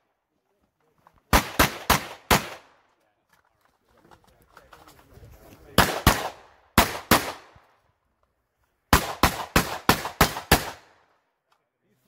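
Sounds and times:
pistol shots: 0:01.3 - 0:02.8, 0:05.8 - 0:07.7, 0:08.9 - 0:11.1.

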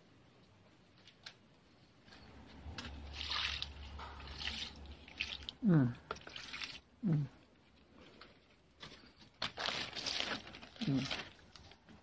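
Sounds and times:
liquid splashing and trickling: 0:02.8 - 0:06.9.

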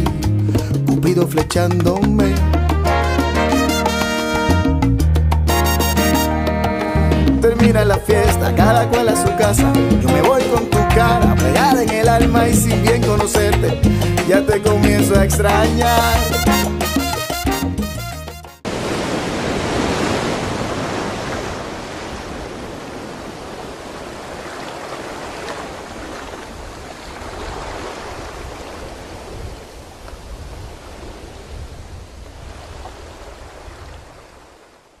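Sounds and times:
ocean wave breaking: 0:18.6 - 0:35.0.

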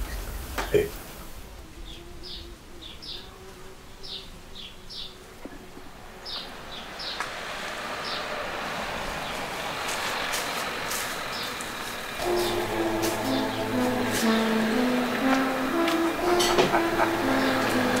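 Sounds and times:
small birds chirping: 0:01.7 - 0:08.4, 0:09.0 - 0:18.0
rushing vehicle noise: 0:05.8 - 0:18.0.

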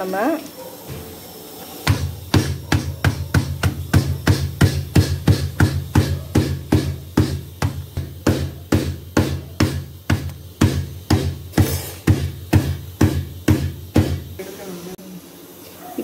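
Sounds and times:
stone pestle thudding: 0:01.9 - 0:14.4.

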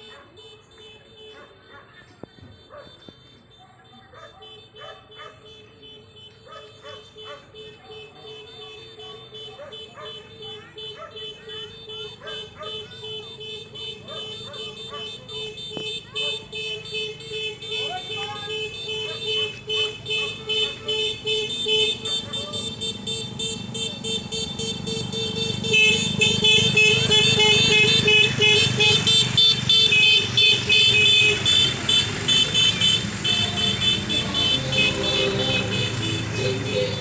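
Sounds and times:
vehicles passing slowly: 0:00.0 - 0:37.0
electronic horn beeping: 0:22.6 - 0:37.0.

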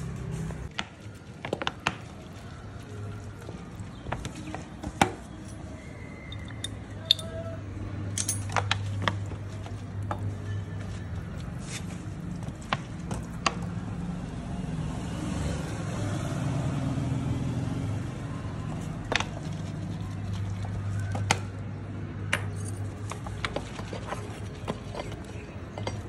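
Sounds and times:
metal parts clicking and clinking: 0:06.3 - 0:07.5, 0:08.1 - 0:08.9, 0:22.3 - 0:26.0.

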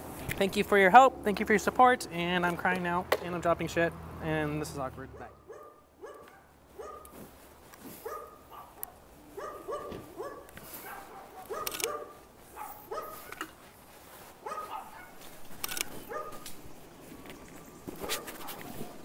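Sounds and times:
dog barking: 0:05.1 - 0:07.2, 0:08.0 - 0:13.4, 0:14.4 - 0:15.2, 0:16.1 - 0:16.5, 0:18.0 - 0:19.0
sharp clicks: 0:11.4 - 0:12.0, 0:15.5 - 0:16.6.

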